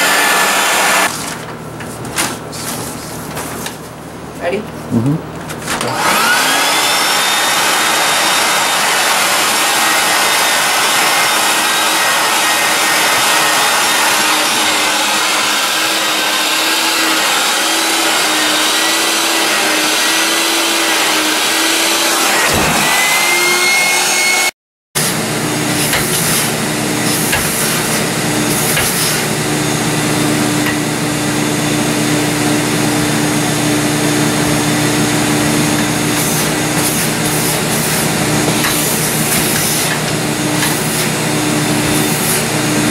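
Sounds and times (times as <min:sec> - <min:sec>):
vacuum motor running: 0:00.0 - 0:01.1, 0:05.0 - 0:42.9.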